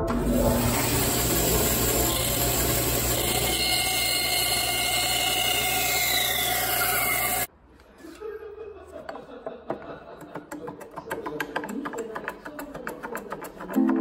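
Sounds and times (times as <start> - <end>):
bandsaw whirring: 0.0 - 7.5.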